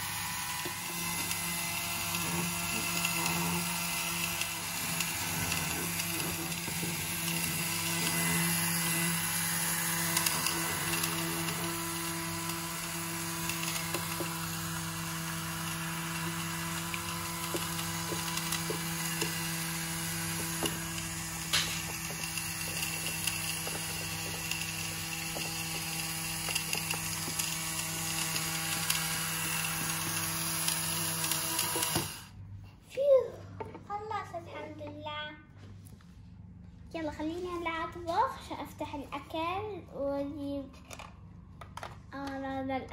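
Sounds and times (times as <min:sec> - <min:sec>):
small motor humming: 0:00.0 - 0:32.4.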